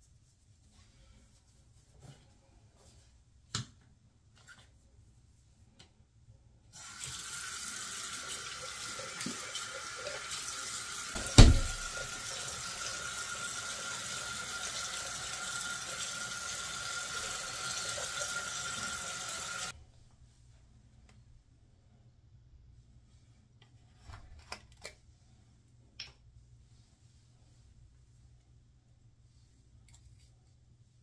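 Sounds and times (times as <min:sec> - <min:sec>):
loud thump: 0:11.2 - 0:11.9.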